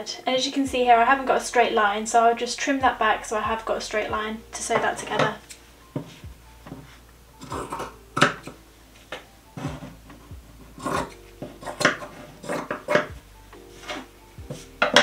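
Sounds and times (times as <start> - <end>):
scissors cutting fabric: 10.8 - 13.1.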